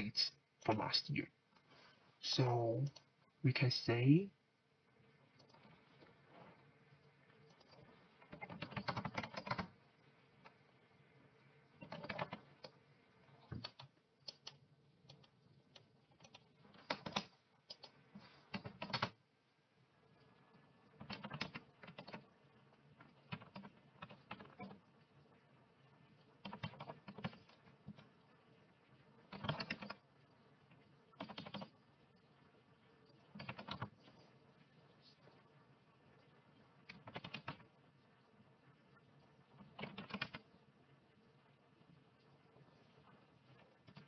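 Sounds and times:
typing on computer keyboard: 7.6 - 9.7, 11.8 - 12.4, 13.5 - 17.9, 18.5 - 19.2, 21.0 - 22.2, 23.3 - 24.8, 26.4 - 27.5, 29.3 - 30.0, 31.2 - 31.7, 33.4 - 34.0, 36.9 - 37.6, 39.6 - 40.4.

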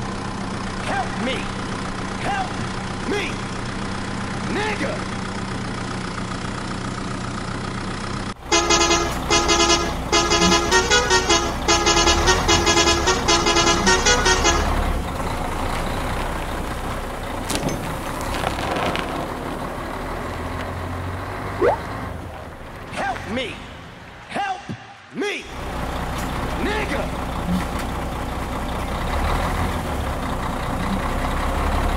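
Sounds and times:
engine hum: 0.0 - 31.9
musical vehicle horn: 8.4 - 15.2.

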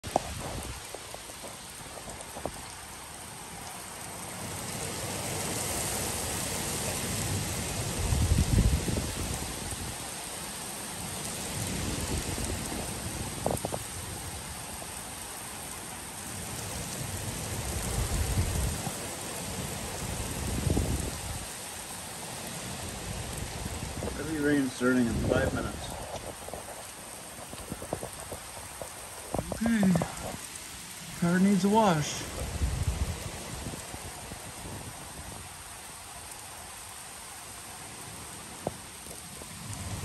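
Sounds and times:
heavy rain on pavement: 0.0 - 40.0.

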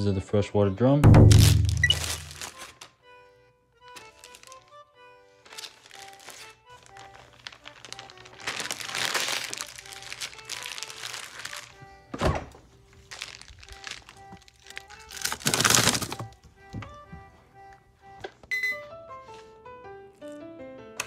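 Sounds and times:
melodic background music: 0.0 - 21.0
heavy thump: 1.0 - 1.8
plastic bag crinkling: 1.2 - 2.9, 3.9 - 16.4.

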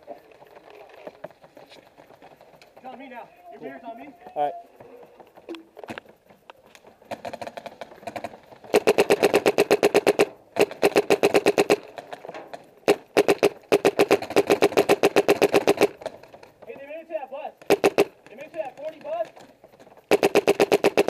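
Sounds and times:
paintball marker firing rapidly: 7.0 - 16.4, 17.6 - 19.5, 20.1 - 21.0.

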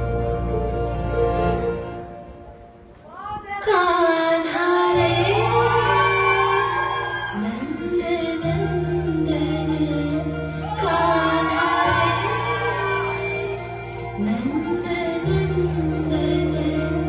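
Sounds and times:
woman singing gliding notes: 3.6 - 17.0.

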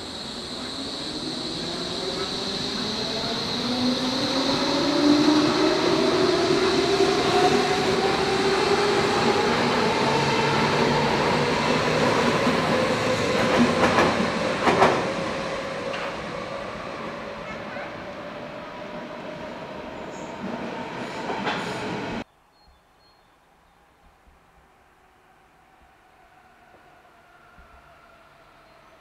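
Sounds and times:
electric train whine rising in pitch: 0.0 - 17.4, 25.3 - 29.0.

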